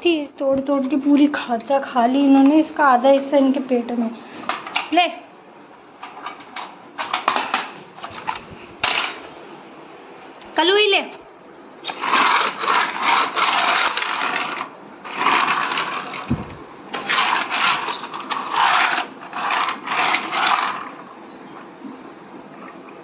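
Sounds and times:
plastic toy scraping on tiles: 4.4s - 4.8s, 7.0s - 9.2s, 11.8s - 21.1s.

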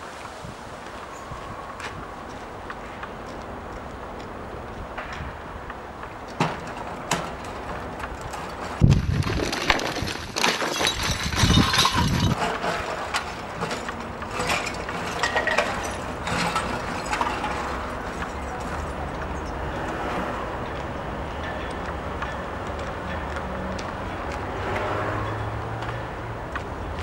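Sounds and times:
steady urban hum: 0.0s - 27.0s
knocks clicks and clinks: 6.3s - 23.9s.

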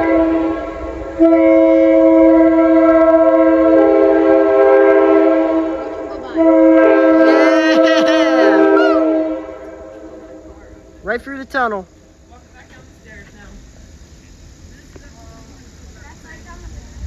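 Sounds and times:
locomotive air horn chord: 0.0s - 11.0s.

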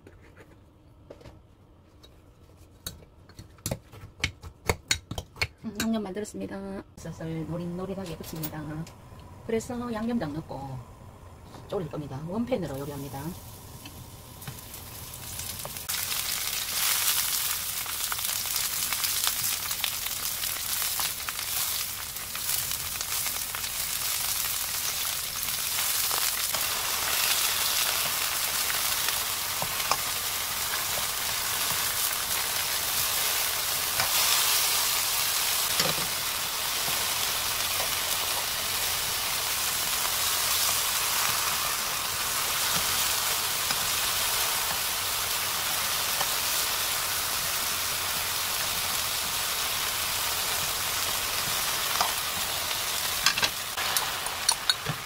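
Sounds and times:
mushrooms sizzling in hot oil: 9.5s - 55.0s.

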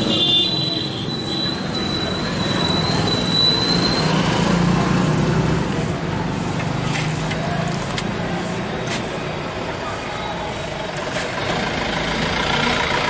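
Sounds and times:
street traffic noise: 0.0s - 13.0s
vehicle engine running: 10.8s - 13.0s.

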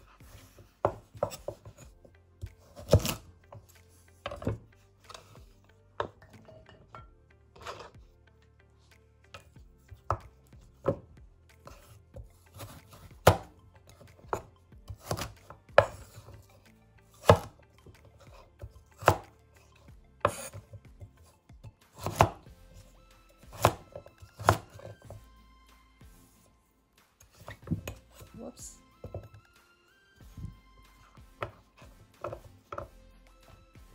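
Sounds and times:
cleaver chopping on wooden board: 2.6s - 3.3s, 10.0s - 11.1s, 12.6s - 13.5s, 14.1s - 16.2s, 17.2s - 17.6s, 19.0s - 19.3s, 21.7s - 22.5s, 23.4s - 25.1s, 31.3s - 33.0s.

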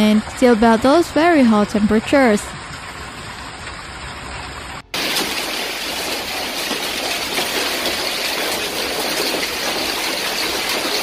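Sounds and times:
hail and rain splashing in pool: 5.0s - 11.0s.

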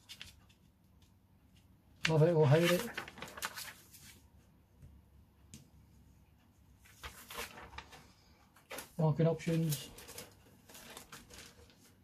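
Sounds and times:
paper rustling: 0.0s - 0.7s, 2.0s - 4.4s, 6.8s - 12.0s.

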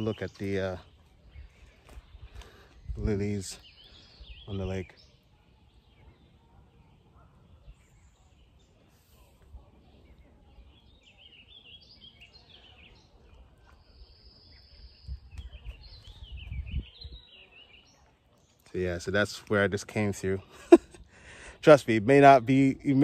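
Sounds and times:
birds chirping: 0.0s - 23.0s
low rumble on microphone: 13.8s - 17.2s.

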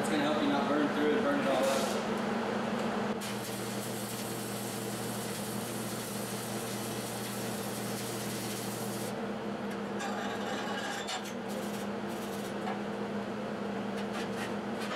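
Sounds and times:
welding arc crackle and hiss: 3.2s - 9.2s, 11.5s - 12.5s.

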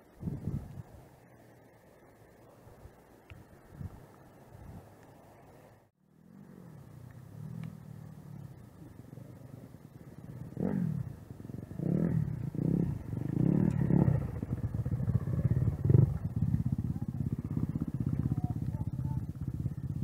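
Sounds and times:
dirt bike engines revving: 6.1s - 20.0s.

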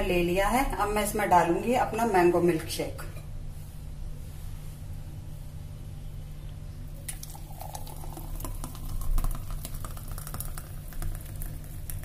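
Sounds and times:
steady low hum: 0.0s - 12.0s
milkshake pouring into a glass: 6.9s - 12.0s.

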